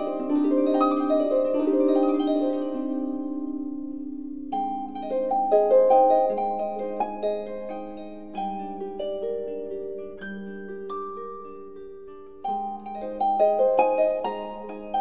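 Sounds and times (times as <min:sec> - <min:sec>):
plucked string melody: 0:00.0 - 0:15.0.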